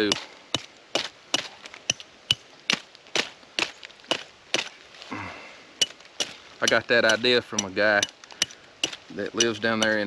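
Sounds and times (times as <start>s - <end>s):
knife striking wooden baton: 5.8s - 10.0s.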